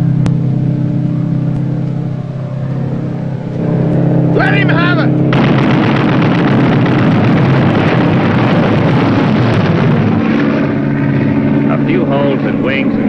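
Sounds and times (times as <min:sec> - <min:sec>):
explosion blasts: 0:04.4 - 0:13.0
gunfire: 0:05.3 - 0:10.8.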